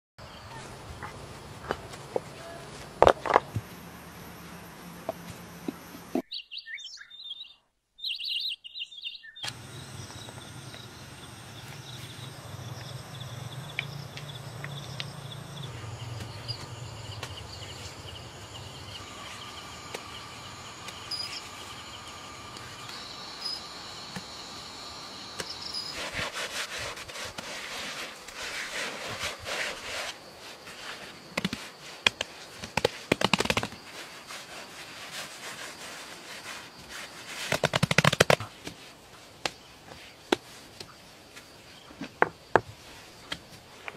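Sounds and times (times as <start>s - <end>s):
birds and insects chirping: 0.2s - 43.9s
low hum: 9.5s - 25.7s.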